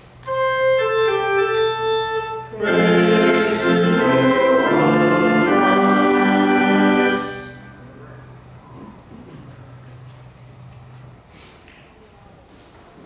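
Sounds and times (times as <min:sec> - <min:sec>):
organ playing: 0:00.2 - 0:08.0.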